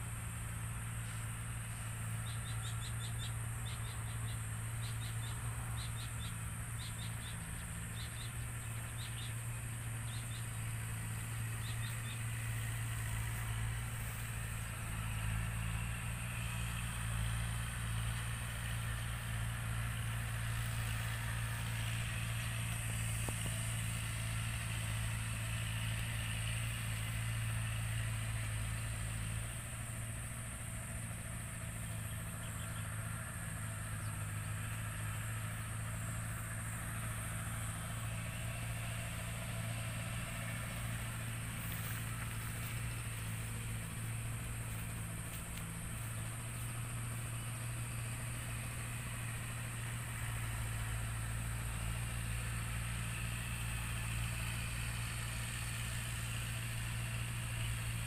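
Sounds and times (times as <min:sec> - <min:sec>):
motor humming: 0:33.6 - 0:51.7.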